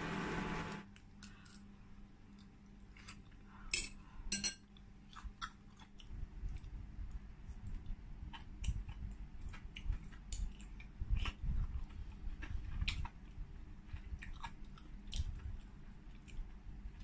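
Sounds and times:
wet chewing: 5.1s - 17.0s.

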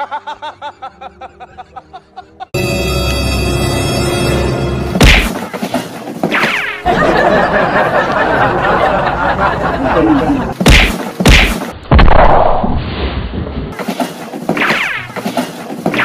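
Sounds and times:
loud thumps: 4.9s - 5.6s, 10.6s - 16.0s.

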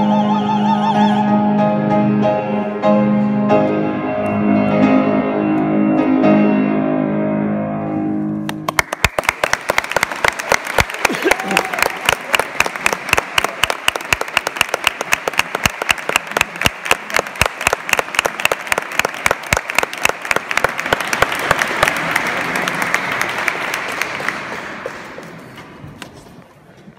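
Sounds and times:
audience applauding: 8.5s - 25.8s.

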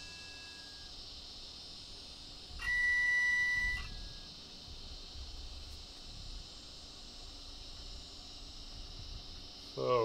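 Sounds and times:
steady high hiss: 0.0s - 10.0s
electronic beep: 2.6s - 4.2s.

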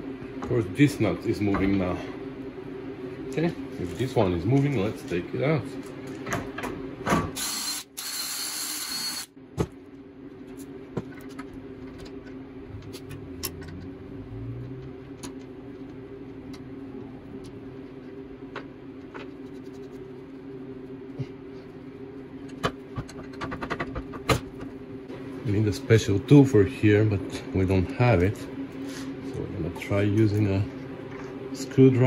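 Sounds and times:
low hum: 0.0s - 7.8s, 9.2s - 32.0s
cordless drill running: 7.4s - 9.3s.

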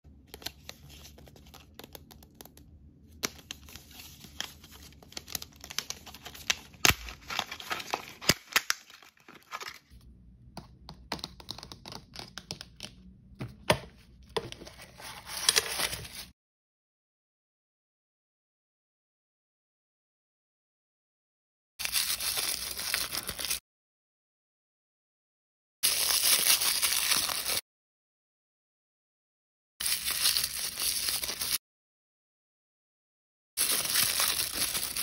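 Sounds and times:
plastic packaging crinkling and tearing: 3.4s - 9.9s, 33.6s - 35.0s.

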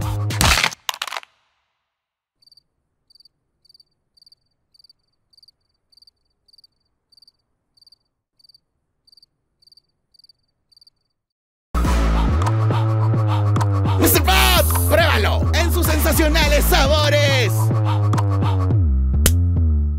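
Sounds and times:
cricket chirping: 2.4s - 11.2s.

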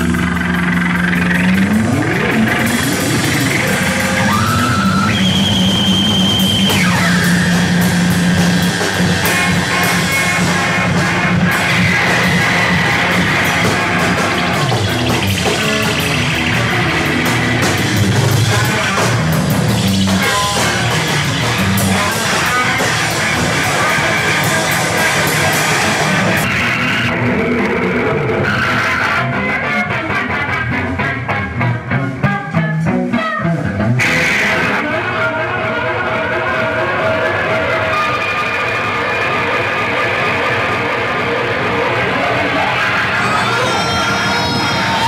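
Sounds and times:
low drone: 0.0s - 28.4s
loud distorted noise music: 0.0s - 45.0s.

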